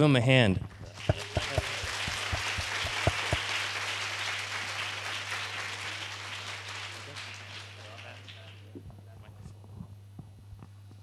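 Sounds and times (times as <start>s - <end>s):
steady low hum: 0.0s - 11.0s
audience applauding: 0.8s - 9.2s.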